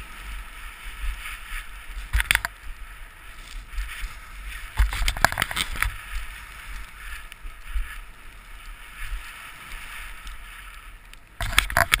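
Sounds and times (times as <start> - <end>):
skis hissing on snow: 0.0 - 4.9
wind rumble on camera: 0.0 - 12.0.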